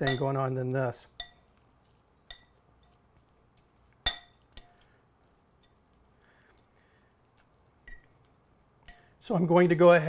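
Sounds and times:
fork clinking against glass bowl: 2.3s - 3.0s.

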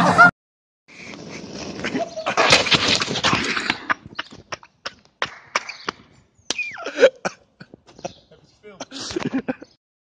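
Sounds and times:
suitcase scraping on asphalt: 0.9s - 3.9s.

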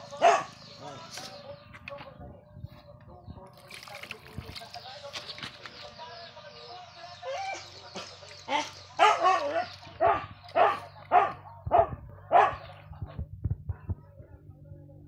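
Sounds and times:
dog barking: 0.1s - 0.6s, 9.0s - 12.8s.

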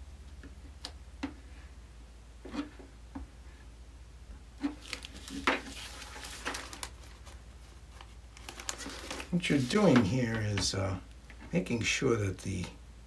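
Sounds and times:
steady low hum: 0.0s - 13.0s
plastic bag rustling: 4.6s - 11.0s.

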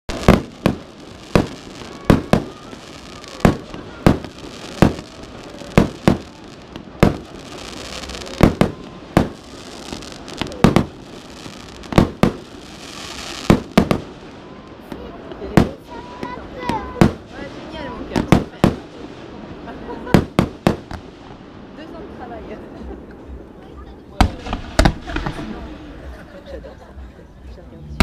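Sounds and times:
firework shells bursting: 0.1s - 14.3s
fireworks crackling and hissing: 0.1s - 28.0s.

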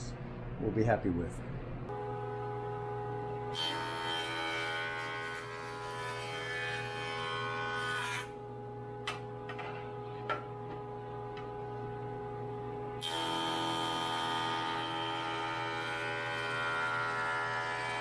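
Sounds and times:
jointer cutterhead planing wood: 3.4s - 8.4s, 12.5s - 18.0s.

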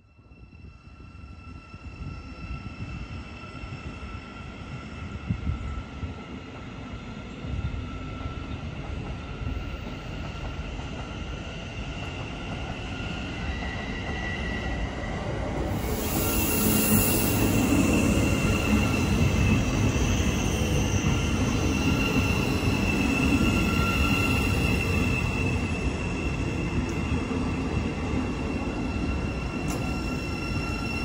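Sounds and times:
train high whine: 0.0s - 31.0s
train wheels rumbling: 7.4s - 31.0s.

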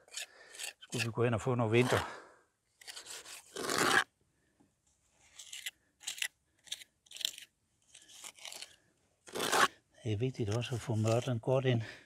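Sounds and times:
trowel scraping mortar: 0.0s - 2.1s, 2.8s - 4.1s, 5.3s - 9.8s, 10.5s - 11.4s.

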